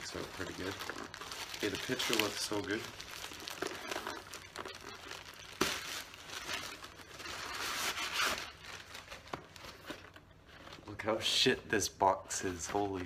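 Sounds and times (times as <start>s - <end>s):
plastic mailer tearing: 0.0s - 9.8s
plastic crinkling: 0.0s - 11.2s.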